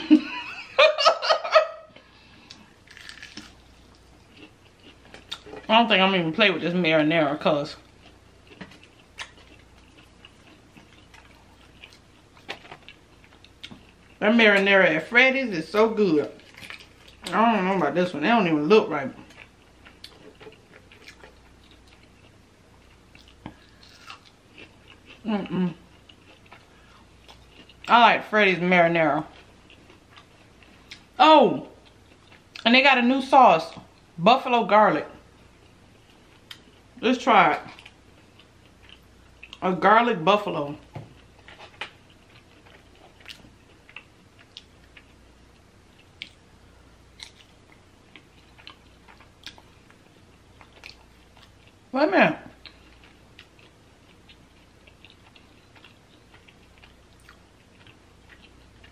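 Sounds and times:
biting and chewing snack: 2.8 - 5.4.

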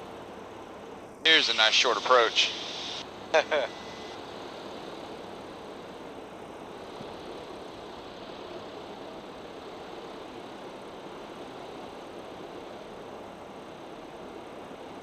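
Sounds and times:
light aircraft engine in cockpit: 0.0 - 15.0
airflow over airframe: 1.3 - 4.1.

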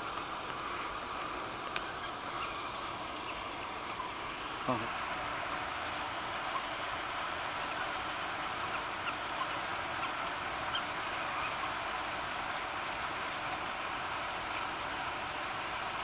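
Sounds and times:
shallow river water flowing: 0.0 - 16.0.

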